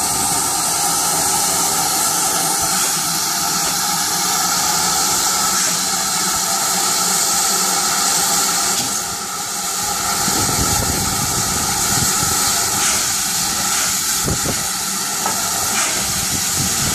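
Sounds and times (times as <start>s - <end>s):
steam locomotive hissing: 0.0s - 16.9s.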